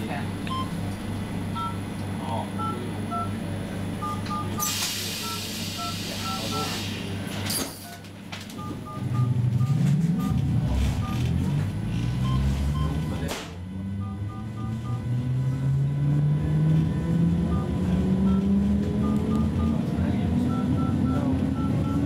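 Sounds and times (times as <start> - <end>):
two-tone electronic beeps: 4.0 - 6.8, 8.6 - 11.5, 12.2 - 13.3, 13.9 - 15.1, 17.4 - 22.0
train motors rising in pitch: 8.8 - 22.0.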